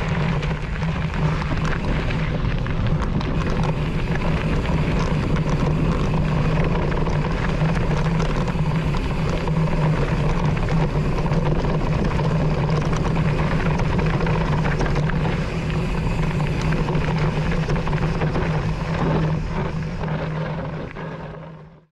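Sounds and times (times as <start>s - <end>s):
bike chatter: 0.0s - 21.6s
wind noise: 0.0s - 21.7s
bike tyre rumble on dirt: 0.0s - 21.9s
constant low hum: 0.0s - 21.9s.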